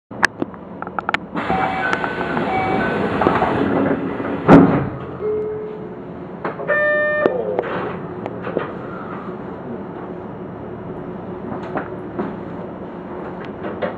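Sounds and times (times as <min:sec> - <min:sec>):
buzzer tone: 0:01.5 - 0:03.0, 0:06.7 - 0:07.4
loud thump: 0:03.3 - 0:05.0.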